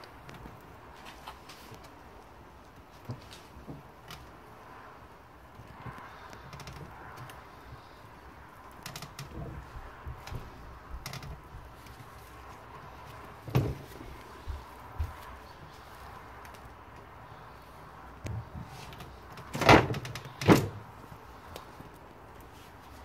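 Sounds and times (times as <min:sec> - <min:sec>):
metallic clicks creaks and knocks: 0:05.5 - 0:07.8, 0:08.7 - 0:12.0, 0:18.2 - 0:20.9
heavy thump: 0:13.4 - 0:14.1.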